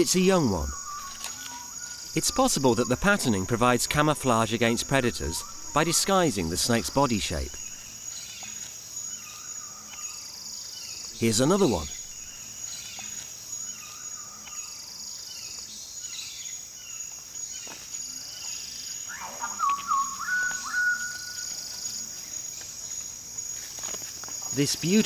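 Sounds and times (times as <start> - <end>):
bird whistling: 0.0 - 7.8, 19.1 - 21.5
high-pitched insect drone: 0.0 - 16.0.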